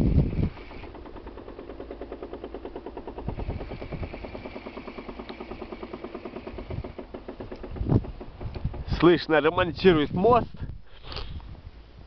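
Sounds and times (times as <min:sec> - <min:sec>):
machine hammering rapidly: 0:00.0 - 0:09.4.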